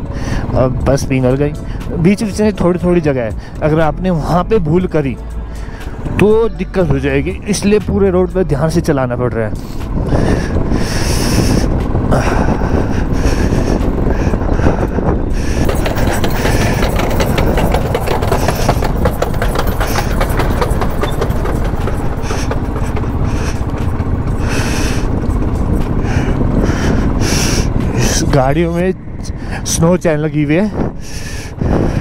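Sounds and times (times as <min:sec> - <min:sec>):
motorcycle engine low rumble: 0:00.0 - 0:32.0
dense fast crackling: 0:10.2 - 0:28.5.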